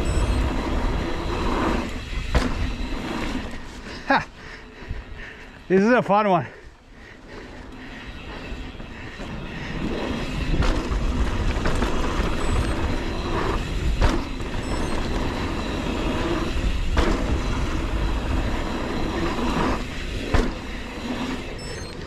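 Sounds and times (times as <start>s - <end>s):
bike rattling: 0.0s - 22.0s
tyres on dirt: 0.0s - 22.0s
sharp knocks from bike: 2.3s - 2.6s, 14.0s - 14.4s
wind rumbling on microphone: 8.2s - 22.0s.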